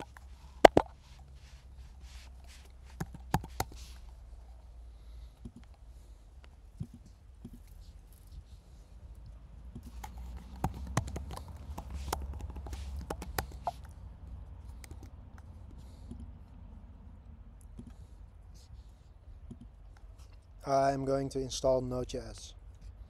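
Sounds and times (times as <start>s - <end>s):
keyboard keys clicking: 3.0s - 3.8s, 9.9s - 13.9s.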